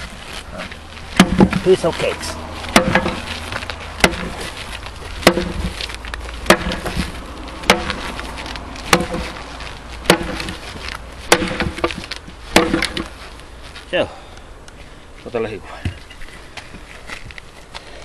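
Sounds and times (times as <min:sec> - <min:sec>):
axe striking wood: 0:01.1 - 0:01.7, 0:02.7 - 0:04.6, 0:05.2 - 0:08.2, 0:08.8 - 0:09.4, 0:10.0 - 0:10.7, 0:11.3 - 0:13.1.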